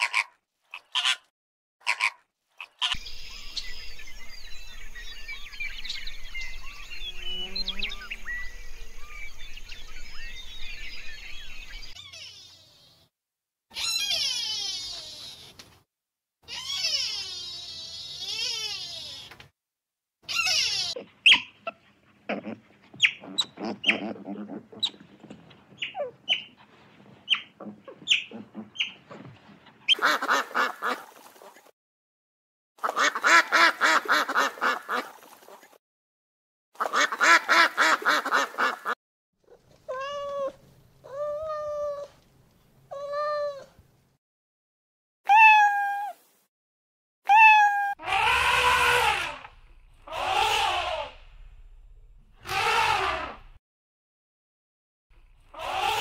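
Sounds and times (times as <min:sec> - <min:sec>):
long buzzing animal calls: 0:16.5 - 0:19.3, 0:48.0 - 0:51.2, 0:52.4 - 0:53.6, 0:55.4 - 0:56.0
animal chirps and clicks: 0:22.9 - 0:26.6
short pitched animal calls: 0:47.3 - 0:51.3, 0:52.4 - 0:53.6, 0:55.4 - 0:56.0.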